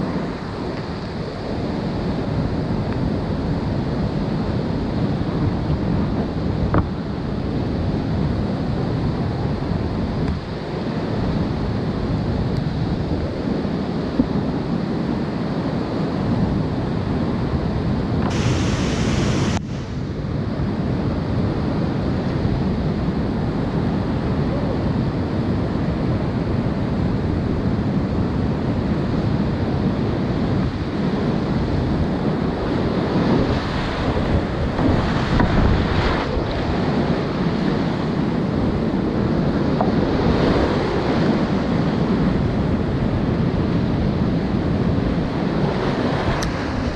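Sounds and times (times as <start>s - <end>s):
rushing whitewater rapids: 0.0s - 16.2s, 18.2s - 20.2s, 29.1s - 46.9s.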